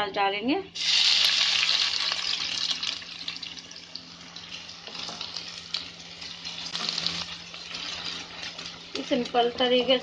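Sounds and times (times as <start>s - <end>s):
onion sizzling in hot oil: 0.8s - 10.0s
wooden spatula stirring: 6.7s - 10.0s.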